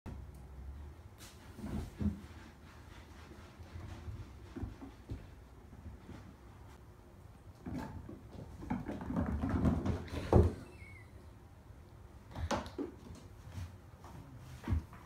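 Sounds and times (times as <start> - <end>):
paws knocking cardboard toys: 7.5 - 10.6.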